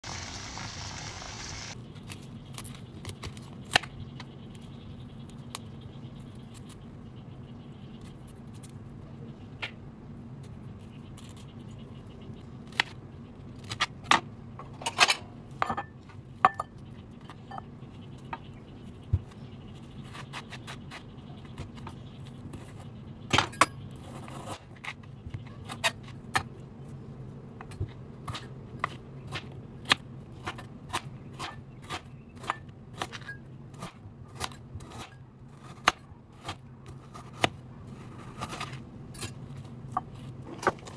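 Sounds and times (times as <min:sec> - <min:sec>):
boiling water hissing: 0:00.0 - 0:01.8.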